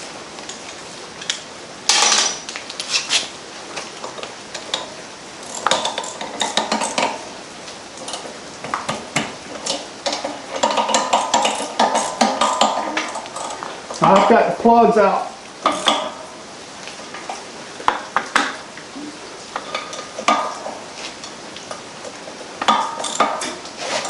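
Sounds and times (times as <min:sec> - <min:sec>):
metal tools clinking and clattering: 0:22.7 - 0:24.0.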